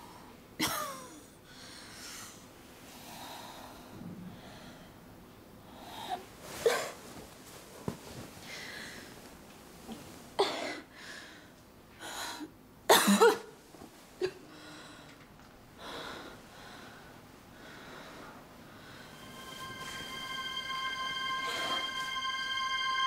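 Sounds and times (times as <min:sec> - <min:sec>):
woman coughing: 0:00.6 - 0:01.2, 0:12.9 - 0:13.5
woman breathing: 0:01.5 - 0:06.3, 0:08.4 - 0:09.2, 0:10.9 - 0:12.5, 0:14.3 - 0:19.8.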